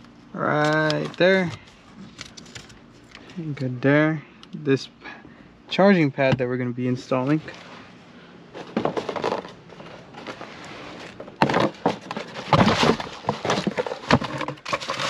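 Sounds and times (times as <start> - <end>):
packaging rustling and crinkling: 8.6 - 15.0.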